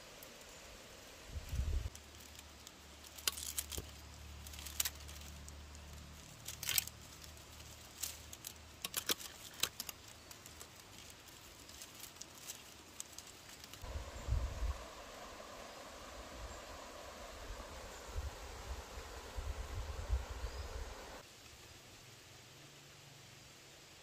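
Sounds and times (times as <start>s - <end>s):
bamboo strips clicking and snapping: 1.9s - 13.8s
stream water flowing: 13.8s - 21.3s.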